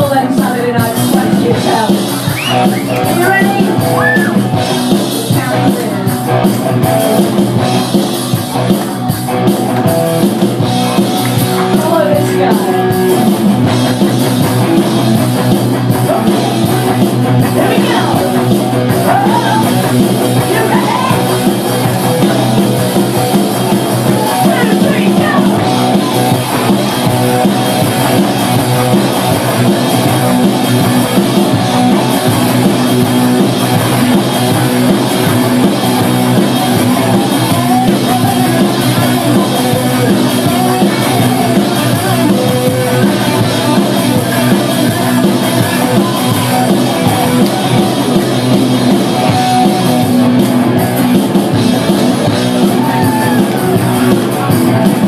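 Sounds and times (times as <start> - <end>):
drums: 0.0 - 55.0
live rock band playing: 0.0 - 55.0
person singing: 16.0 - 21.4, 36.6 - 48.0.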